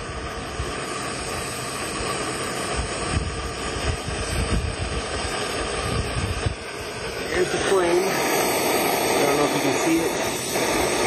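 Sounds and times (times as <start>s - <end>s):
gas stove flame hissing: 0.0s - 11.0s
wind buffeting microphone: 2.7s - 9.5s.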